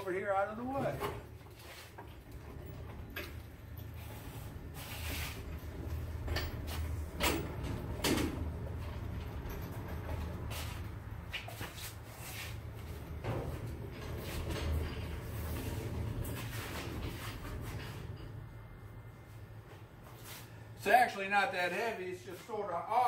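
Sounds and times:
hoist casters rolling rumble: 0.0s - 23.0s
metal knocks and clanks: 5.6s - 11.6s, 12.7s - 18.4s.

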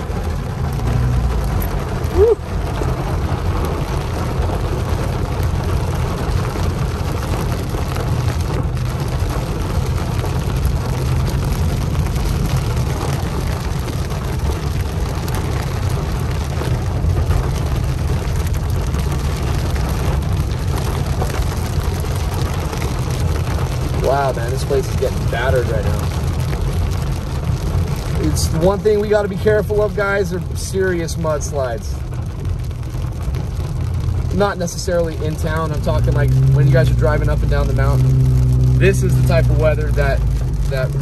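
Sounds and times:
car rolling rumble: 0.0s - 41.0s
heavy rain drumming on car roof: 0.0s - 41.0s.

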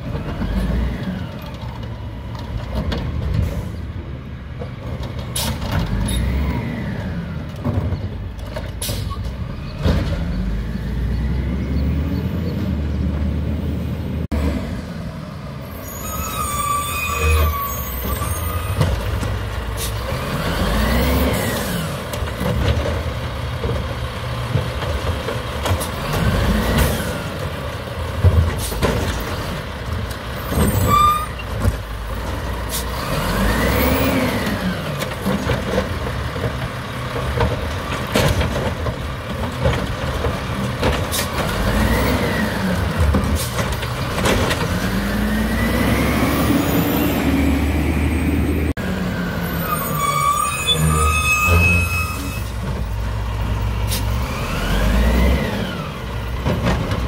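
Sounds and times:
diesel truck engine revving: 18.7s - 31.0s, 31.8s - 57.0s
clunks of carts and arm: 34.9s - 42.2s, 42.8s - 45.0s.

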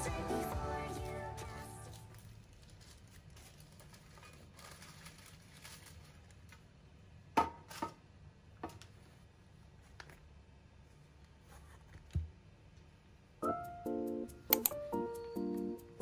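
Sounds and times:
baking paper rustling: 1.8s - 6.8s.

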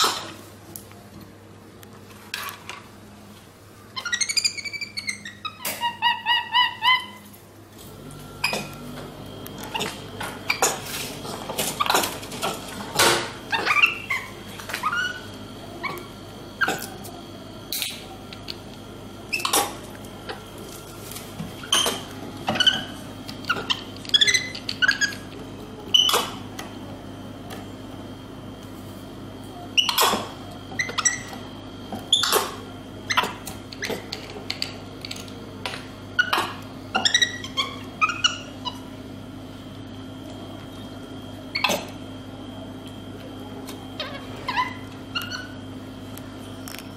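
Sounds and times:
monkey squeaking: 4.0s - 7.2s, 13.5s - 16.9s, 21.6s - 25.3s, 30.8s - 31.3s, 36.2s - 38.8s, 44.0s - 45.6s.

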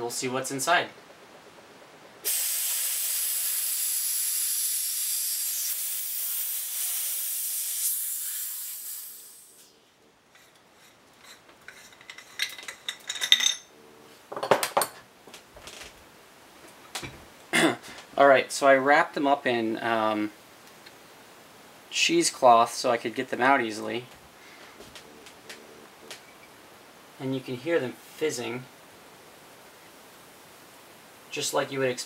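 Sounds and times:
cream whipper hissing: 2.2s - 9.7s
light metal clicks and clatters: 10.3s - 13.6s.

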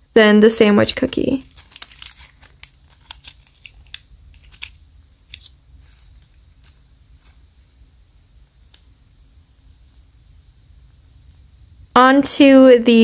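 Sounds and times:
plastic wrapper rustling: 1.0s - 7.7s.

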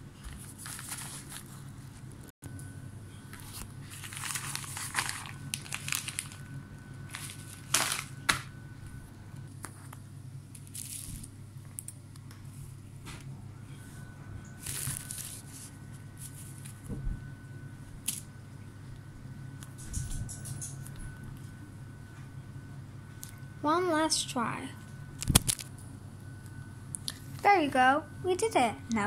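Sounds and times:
bubble wrap crinkling: 0.2s - 1.8s, 3.3s - 8.5s, 10.5s - 11.9s, 14.6s - 16.8s
plastic bag crinkling: 0.3s - 1.7s, 3.4s - 8.5s, 14.6s - 15.7s.

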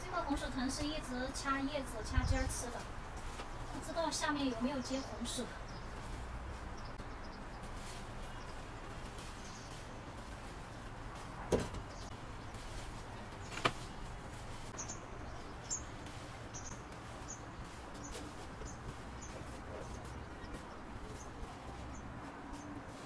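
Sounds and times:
small bird chirping: 14.7s - 22.8s.

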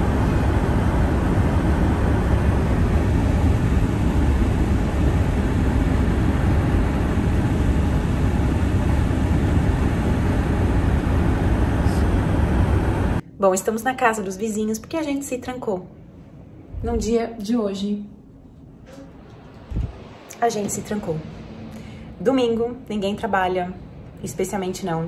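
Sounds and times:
car road and wind rumble: 19.1s - 22.9s.

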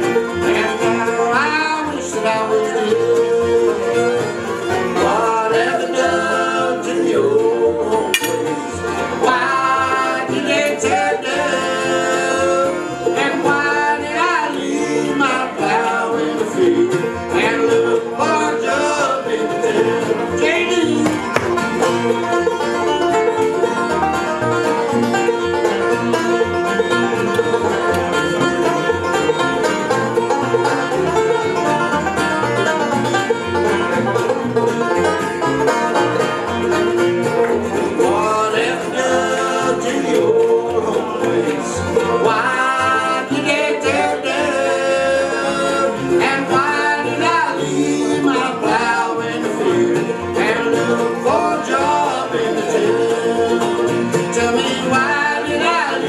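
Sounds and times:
voices singing in harmony: 0.0s - 22.6s, 37.7s - 56.0s
banjo: 0.0s - 56.0s
bluegrass band playing: 0.0s - 56.0s.

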